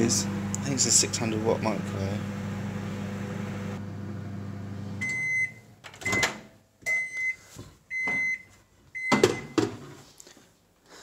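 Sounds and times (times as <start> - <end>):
microwave oven humming: 0.0 - 6.2.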